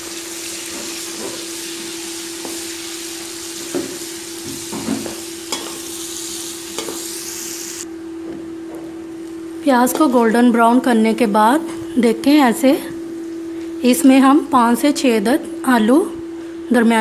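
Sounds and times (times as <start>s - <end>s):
onions sizzling in oil: 0.0s - 7.9s.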